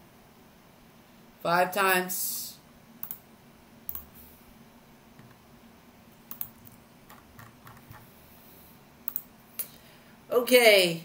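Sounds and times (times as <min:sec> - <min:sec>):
mouse and keyboard clicks: 0:06.3 - 0:08.1, 0:09.1 - 0:09.3.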